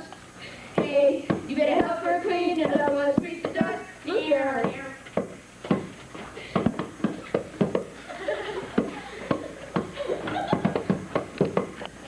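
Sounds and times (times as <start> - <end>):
sharp knocks: 4.6 - 5.9, 6.6 - 7.9.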